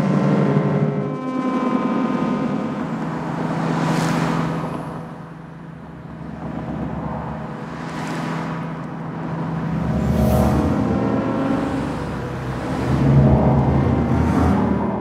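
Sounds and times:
steady low tone: 0.0 - 15.0
road traffic passing: 3.8 - 15.0.

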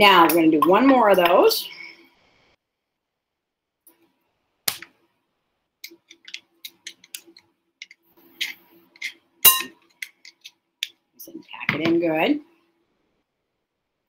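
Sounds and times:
metal spoon scraping in jar: 6.1 - 10.5.

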